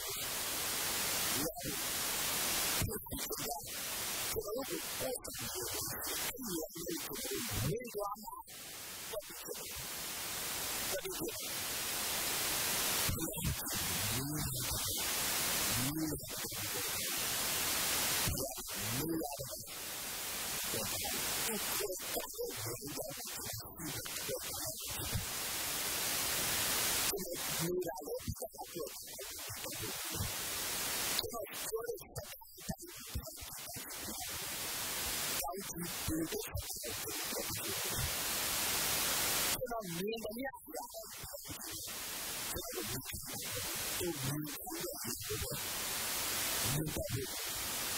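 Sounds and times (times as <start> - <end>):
recording hiss: 0.0 - 47.9
man preaching into a microphone: 1.3 - 1.8, 2.8 - 3.7, 4.3 - 8.5, 9.1 - 9.8, 10.9 - 11.5, 13.0 - 15.1, 15.7 - 17.2, 18.2 - 19.8, 20.7 - 25.2, 27.0 - 30.3, 31.2 - 34.3, 35.4 - 38.1, 39.5 - 41.9, 42.5 - 45.6, 46.6 - 47.4.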